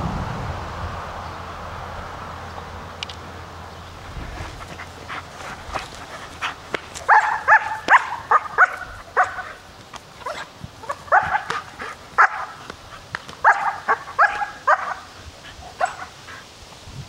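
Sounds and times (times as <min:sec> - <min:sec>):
dog barking: 0:07.0 - 0:09.6, 0:10.2 - 0:12.7, 0:13.4 - 0:15.1, 0:15.8 - 0:16.1.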